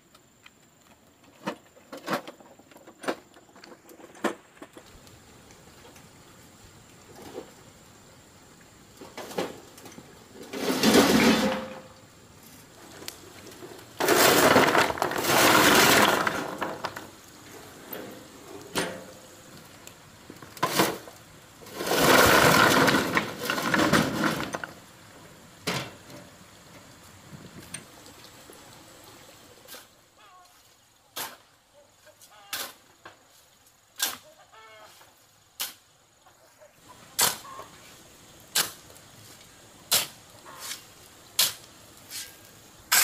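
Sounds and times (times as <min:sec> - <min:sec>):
gravel clattering: 0:08.9 - 0:28.0.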